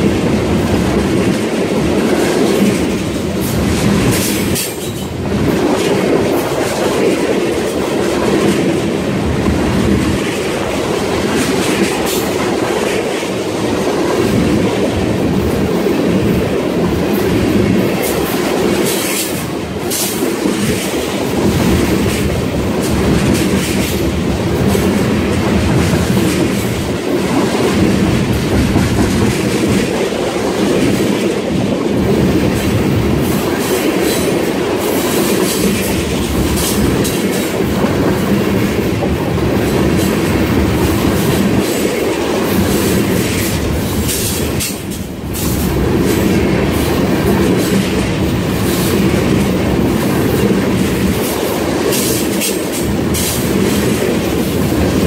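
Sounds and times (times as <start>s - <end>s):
train wheels rumbling on rail: 0.0s - 55.0s
wheels clicking over rail joints: 1.1s - 9.0s.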